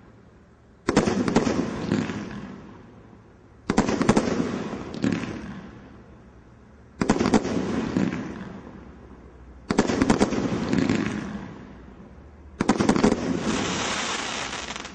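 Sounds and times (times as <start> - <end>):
fireworks bursting: 0.8 - 2.7, 9.7 - 11.7, 12.6 - 14.9.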